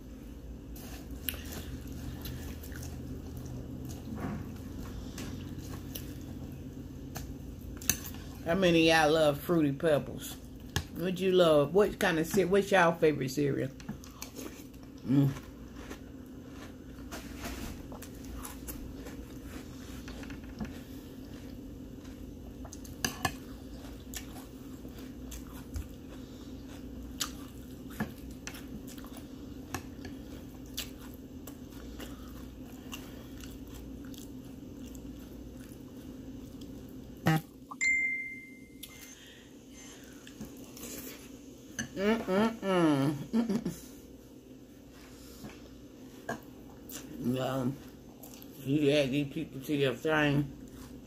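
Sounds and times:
steady low hum: 0.0 - 51.0
cereal being chewed: 13.9 - 37.1
brief high tone: 37.8 - 39.1.

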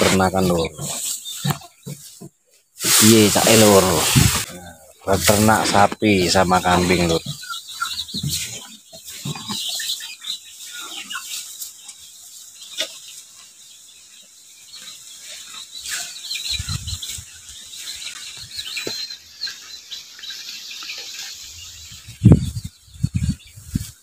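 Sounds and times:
rustling: 0.0 - 4.5
cattle munching grass: 0.0 - 7.4
high chirping: 2.8 - 24.0.

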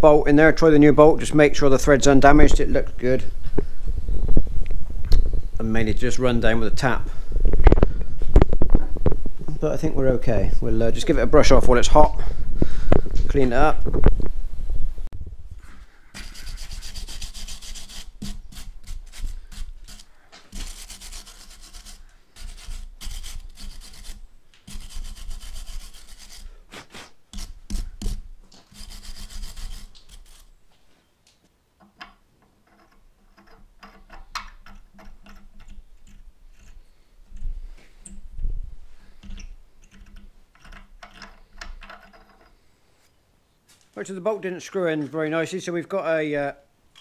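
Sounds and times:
wire brush scrubbing steel: 16.2 - 30.6.

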